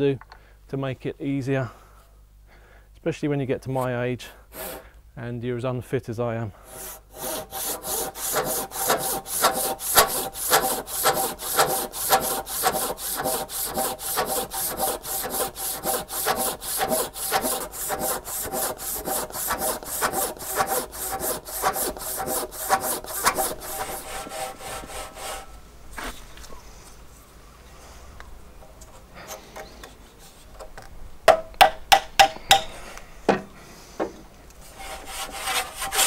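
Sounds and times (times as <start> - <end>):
hand saw cutting wood: 4.5 - 4.9, 6.6 - 25.5, 34.7 - 36.0.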